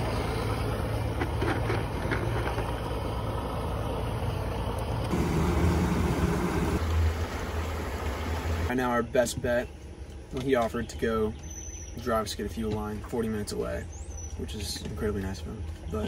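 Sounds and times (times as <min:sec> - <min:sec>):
outboard motor running: 0:00.0 - 0:08.7.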